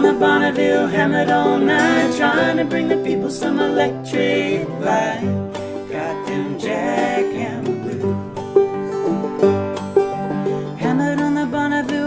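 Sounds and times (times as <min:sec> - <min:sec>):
voices singing: 0:00.0 - 0:08.4
acoustic guitars and banjo playing: 0:00.0 - 0:12.0.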